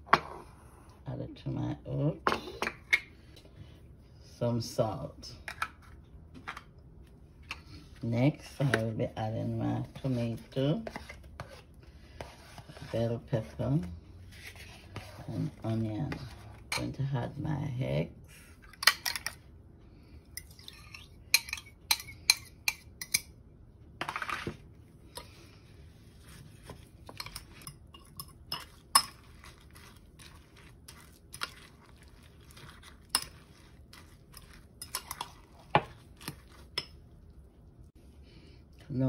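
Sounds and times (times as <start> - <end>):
spoon scraping glass bowl: 26.2 - 37.0.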